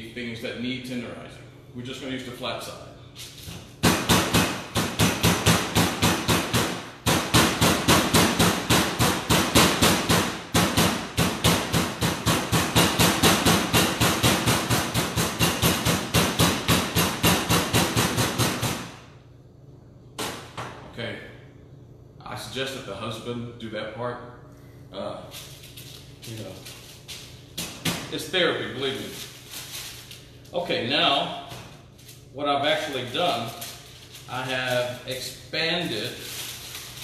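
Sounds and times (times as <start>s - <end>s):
meat mallet pounding chicken: 3.8s - 18.8s.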